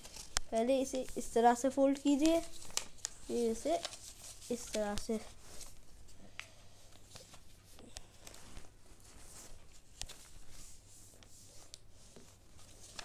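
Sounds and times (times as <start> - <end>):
paper rustling and sliding: 2.0 - 5.8, 8.2 - 13.0
paper clicks and taps: 4.6 - 5.2.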